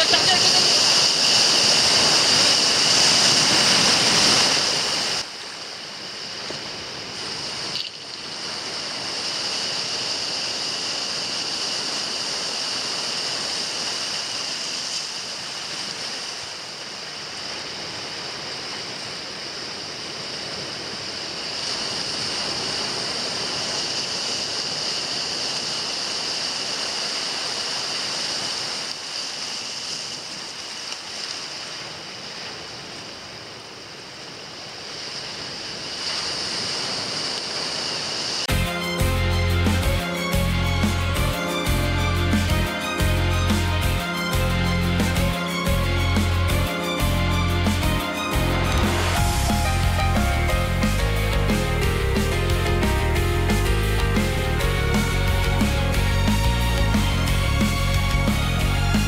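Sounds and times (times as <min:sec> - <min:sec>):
waves washing on rocky shore: 0:00.0 - 0:38.5, 0:47.8 - 0:49.9.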